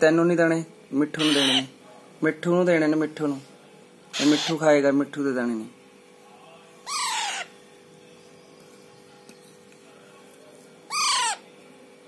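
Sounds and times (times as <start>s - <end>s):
parakeet calling: 1.1s - 1.7s, 4.1s - 4.8s, 6.8s - 7.6s, 10.9s - 11.5s.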